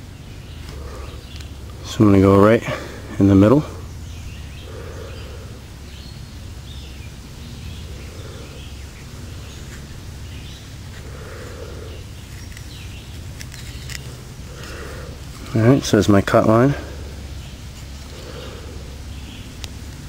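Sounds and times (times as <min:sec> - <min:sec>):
low outdoor rumble: 0:00.0 - 0:20.0
knife scraping wood: 0:12.2 - 0:15.6.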